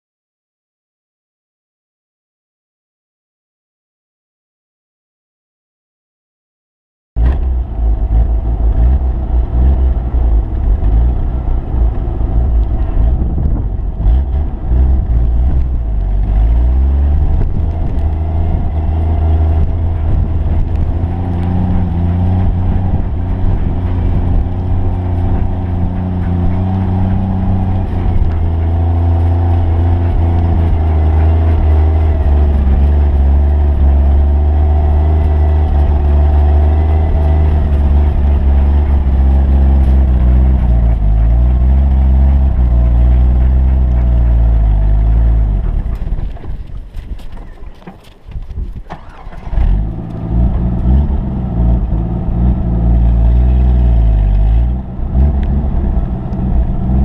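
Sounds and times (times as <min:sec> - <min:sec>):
car engine rumbling: 0:07.2 - 0:57.0.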